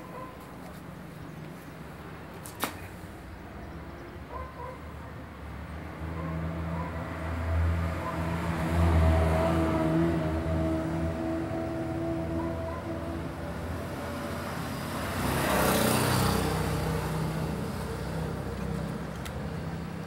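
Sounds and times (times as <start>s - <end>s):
vehicle engine hum: 5.7s - 20.0s.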